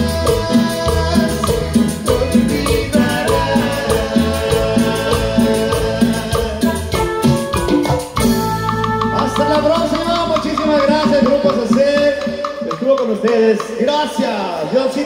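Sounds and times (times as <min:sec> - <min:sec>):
congas: 0:00.0 - 0:15.0
drums: 0:00.0 - 0:15.0
keyboard: 0:00.0 - 0:15.0
saxophones: 0:01.3 - 0:12.7.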